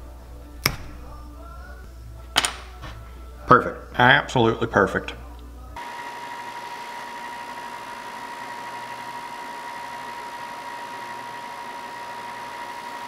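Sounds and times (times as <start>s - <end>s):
belt sander whining: 5.8s - 13.0s.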